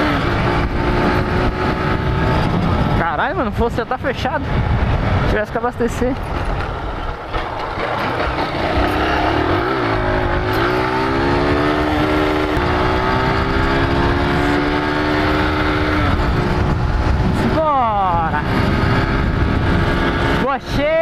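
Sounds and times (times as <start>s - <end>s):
wind rumbling on microphone: 0.0s - 21.0s
small motorcycle engine running: 6.2s - 21.0s.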